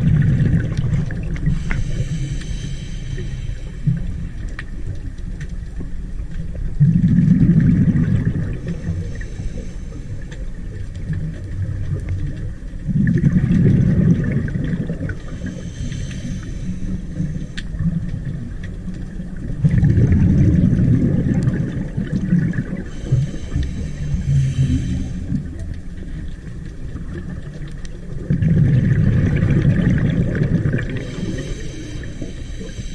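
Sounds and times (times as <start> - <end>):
exhaled bubbles underwater: 0.0 - 32.9
regulator hiss: 1.4 - 4.5, 8.6 - 10.5, 15.1 - 18.0, 22.8 - 26.2, 30.9 - 32.9.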